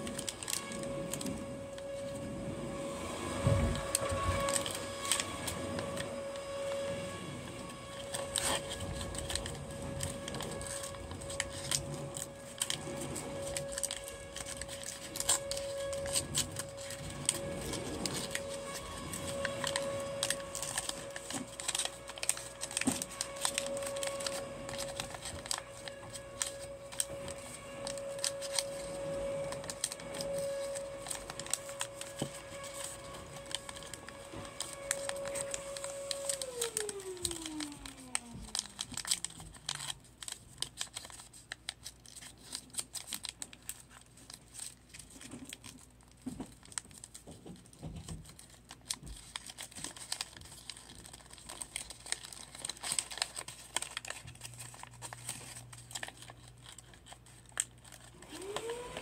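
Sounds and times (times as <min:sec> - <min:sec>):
steady hum: 0:00.0 - 0:40.2
paper crinkling and rustling: 0:00.0 - 0:59.0.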